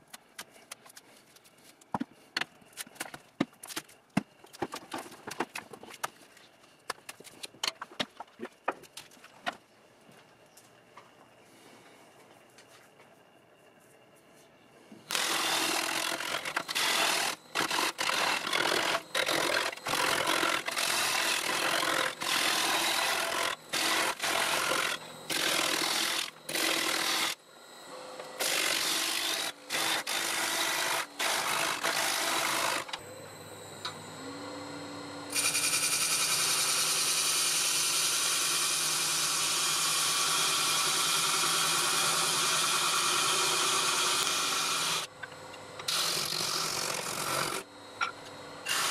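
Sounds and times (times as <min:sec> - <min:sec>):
turning tool cutting wood on lathe: 0:15.1 - 0:27.4, 0:28.3 - 0:33.0, 0:35.3 - 0:45.1, 0:45.9 - 0:48.9
lathe hum: 0:15.1 - 0:48.9.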